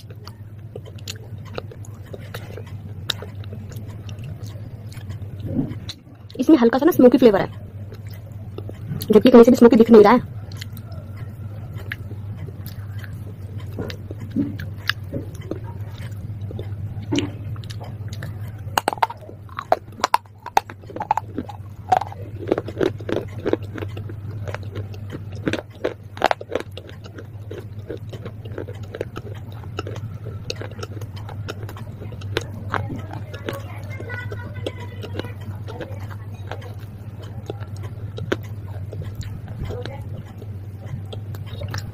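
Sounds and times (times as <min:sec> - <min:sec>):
steady low hum: 0:00.0 - 0:41.9
crisp crunching bites: 0:11.8 - 0:33.7.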